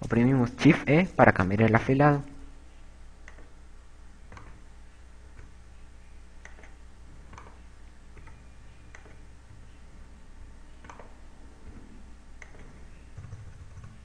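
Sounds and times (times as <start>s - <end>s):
faint low hum: 0.0s - 14.0s
computer mouse clicking: 3.2s - 3.5s, 4.3s - 4.6s, 5.3s - 5.6s, 6.4s - 9.3s, 10.8s - 14.0s.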